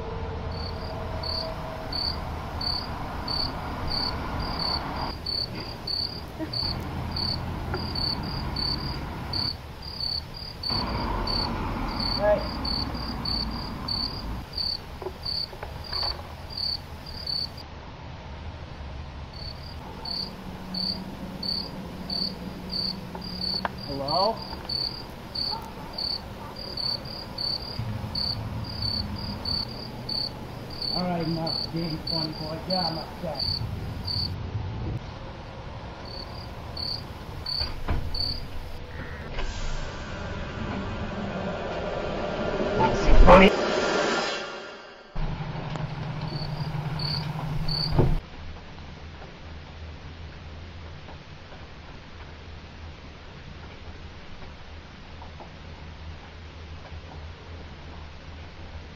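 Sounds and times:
crickets chirping: 0:00.4 - 0:17.6, 0:19.4 - 0:34.4, 0:36.0 - 0:42.8, 0:46.2 - 0:48.2
low background rumble: 0:24.5 - 0:37.5, 0:38.1 - 0:47.7.

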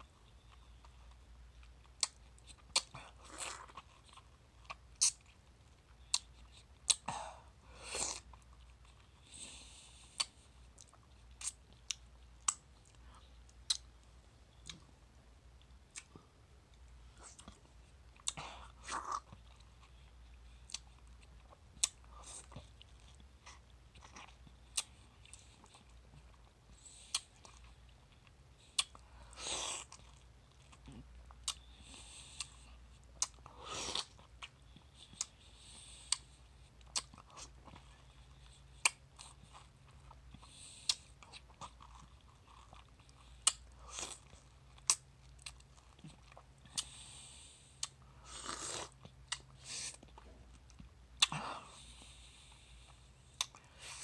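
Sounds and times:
mouth smacks and clicks: 0:01.8 - 0:05.4, 0:06.0 - 0:07.1, 0:10.2 - 0:14.9, 0:15.6 - 0:26.3, 0:27.1 - 0:31.7, 0:36.1 - 0:46.9, 0:47.8 - 0:51.4, 0:53.4 - 0:53.6.

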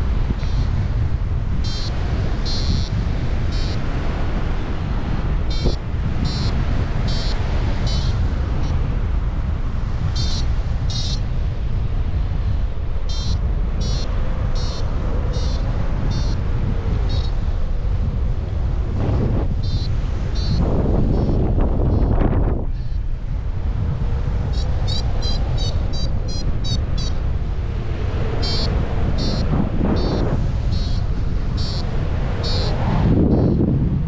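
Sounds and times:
wind rushing over microphone: 0:00.0 - 0:34.0
variometer high beeps: 0:01.6 - 0:03.8, 0:05.5 - 0:08.2, 0:10.1 - 0:11.2, 0:13.1 - 0:16.4, 0:19.6 - 0:20.6, 0:24.6 - 0:27.2, 0:28.4 - 0:31.8.

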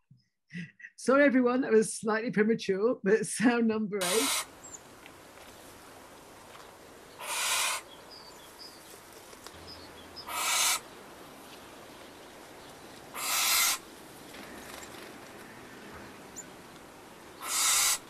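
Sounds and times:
barn owl screeching: 0:04.0 - 0:04.8, 0:07.2 - 0:08.4, 0:09.7 - 0:10.9, 0:13.1 - 0:13.9, 0:17.4 - 0:18.0.

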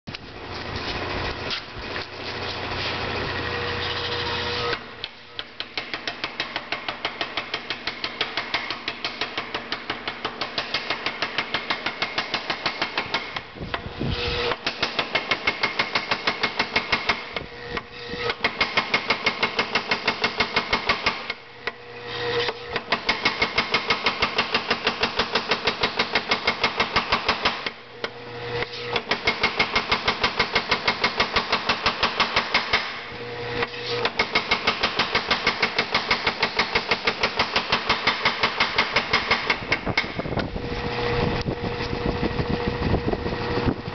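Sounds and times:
power hammer motor running: 0:02.6 - 0:05.0
power hammer striking steel: 0:04.6 - 0:40.4.

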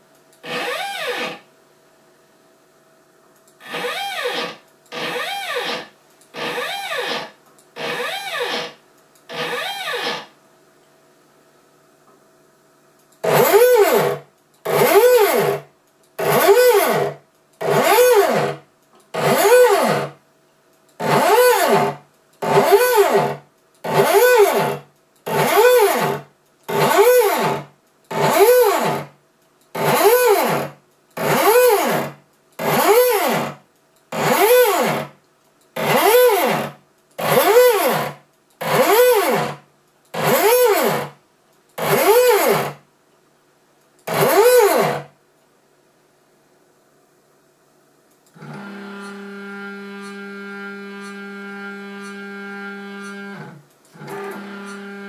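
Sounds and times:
stepper motor whine: 0:13.2 - 0:15.6, 0:16.2 - 0:18.6, 0:19.2 - 0:20.1.

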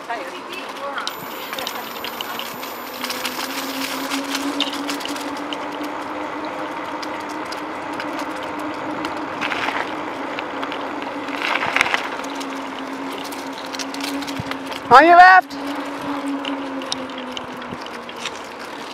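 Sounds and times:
bike ticking and rattling: 0:00.0 - 0:18.9
bicycle tyre noise: 0:00.8 - 0:18.9
low hum: 0:01.1 - 0:14.9.

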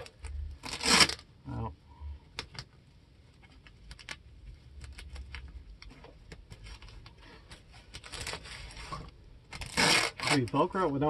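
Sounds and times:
small clicks and fabric rustles: 0:02.3 - 0:09.0.

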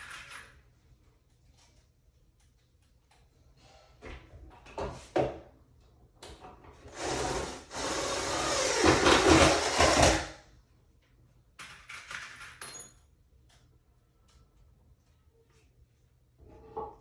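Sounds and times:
cordless drill driving screw: 0:06.9 - 0:10.2.

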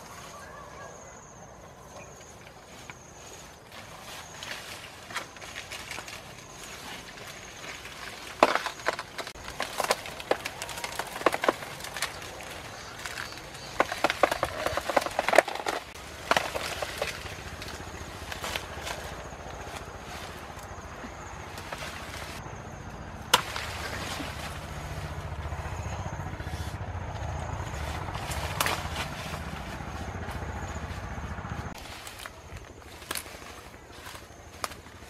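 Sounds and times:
leaves rustling and crackling: 0:02.0 - 0:22.5, 0:23.3 - 0:25.9, 0:26.5 - 0:35.0
machete chopping plant: 0:08.2 - 0:19.9, 0:23.3 - 0:24.7, 0:28.1 - 0:29.9.

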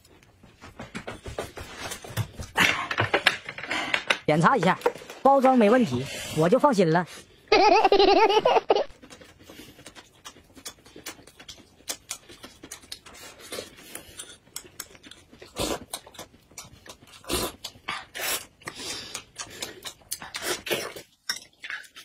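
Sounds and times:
lip smacks and chewing: 0:08.9 - 0:22.0
clicky mouth sounds: 0:09.1 - 0:13.1, 0:18.6 - 0:21.0.

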